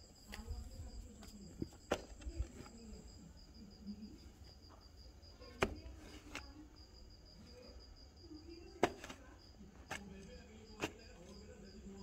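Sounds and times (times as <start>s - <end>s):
crickets chirping: 0.0s - 12.0s
pickaxe striking earth: 5.6s - 6.4s, 8.8s - 9.2s, 10.8s - 11.4s.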